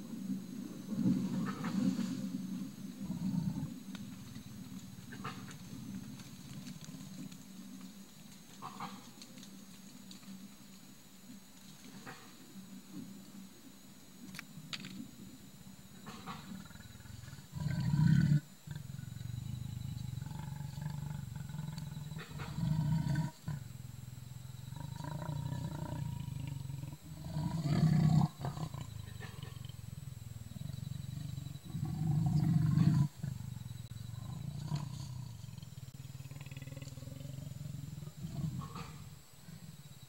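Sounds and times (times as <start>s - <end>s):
leopard growling and snarling: 0.9s - 7.4s, 16.0s - 23.8s, 24.6s - 39.9s.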